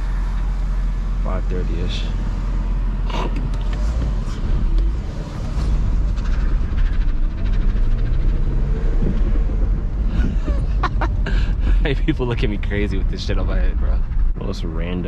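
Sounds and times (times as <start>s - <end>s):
car engine and road rumble: 0.0s - 15.0s.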